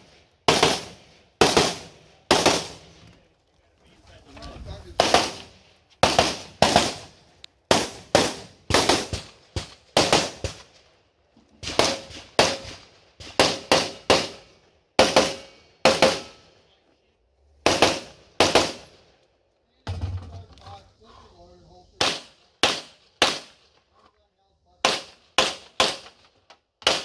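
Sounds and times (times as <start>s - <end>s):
rifle firing rapid shots: 0.5s - 2.8s, 5.0s - 7.1s, 7.7s - 10.7s, 11.6s - 14.4s, 15.0s - 16.3s, 17.6s - 18.9s, 22.0s - 23.6s, 24.8s - 26.2s.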